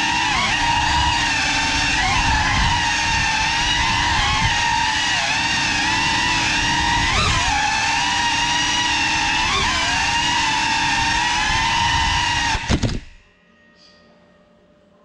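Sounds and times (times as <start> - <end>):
drone motors whining: 0.0 - 13.2.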